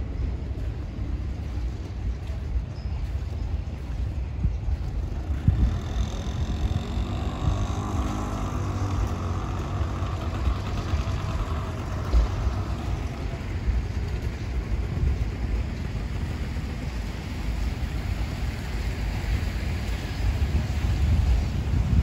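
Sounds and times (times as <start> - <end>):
wind rumble on microphone: 0.0 - 22.0
vehicle engine running: 4.7 - 22.0.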